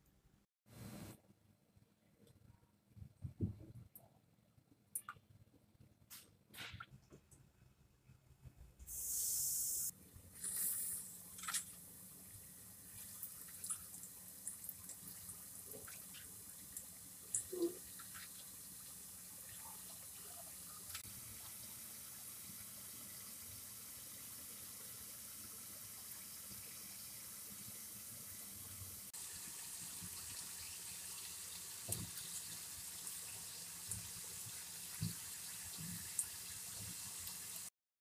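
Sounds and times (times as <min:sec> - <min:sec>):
food deep-frying sizzle: 0:08.9 - 0:37.7.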